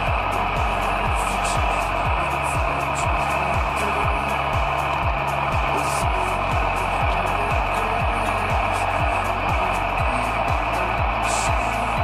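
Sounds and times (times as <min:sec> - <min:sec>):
music with low drum beat: 0:00.0 - 0:12.0.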